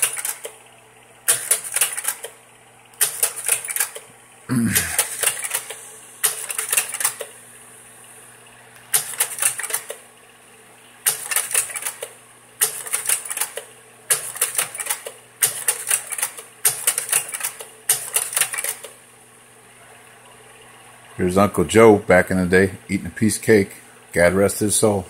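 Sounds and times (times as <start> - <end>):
slide projector clicking: 0.0 - 0.6, 1.2 - 4.2, 4.9 - 7.4, 8.8 - 10.0, 11.0 - 19.0
steady low hum: 0.0 - 11.1.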